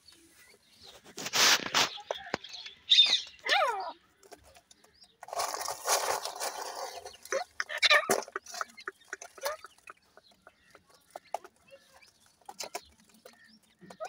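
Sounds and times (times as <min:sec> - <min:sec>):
scuffling noise: 0:00.1 - 0:02.5, 0:05.2 - 0:07.6.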